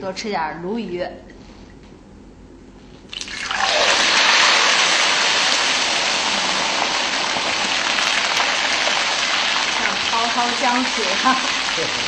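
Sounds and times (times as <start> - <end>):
fish deep-frying sizzle: 3.1 - 12.0.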